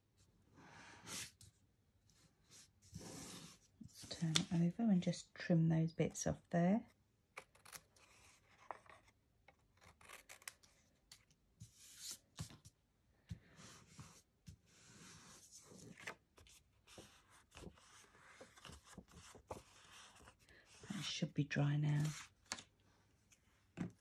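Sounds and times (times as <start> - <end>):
scissors snipping paper: 7.4 - 11.3.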